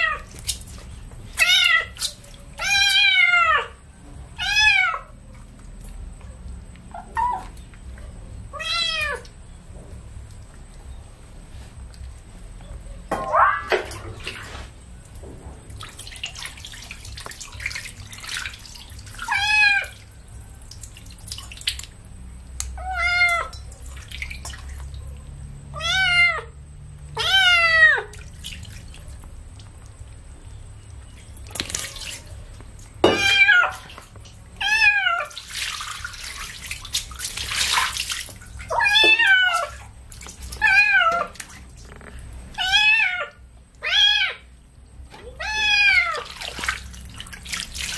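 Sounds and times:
water splashing: 0:15.7 - 0:22.1, 0:23.3 - 0:25.3, 0:27.9 - 0:42.3, 0:45.1 - 0:47.9
kitten meowing: 0:25.8 - 0:26.5, 0:27.2 - 0:28.1.

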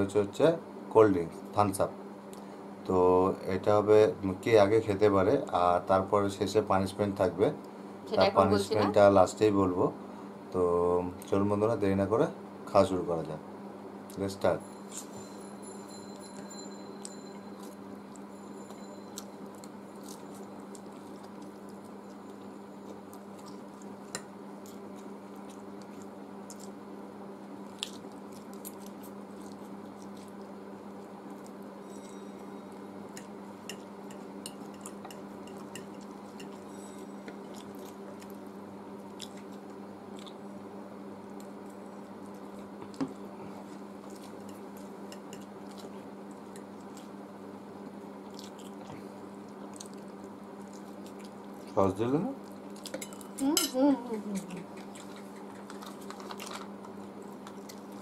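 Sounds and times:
steady low hum: 0:00.0 - 0:58.0
people chewing noodles: 0:17.0 - 0:26.9, 0:27.5 - 0:31.8, 0:34.2 - 0:40.6, 0:41.3 - 0:58.0.

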